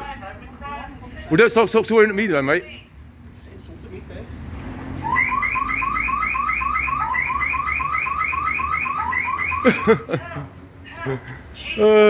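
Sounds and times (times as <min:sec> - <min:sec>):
electronic alarm chirping: 0:05.0 - 0:09.7.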